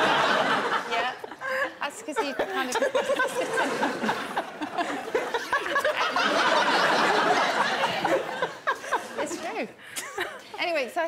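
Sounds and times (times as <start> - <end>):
audience laughing: 0.0 - 9.6.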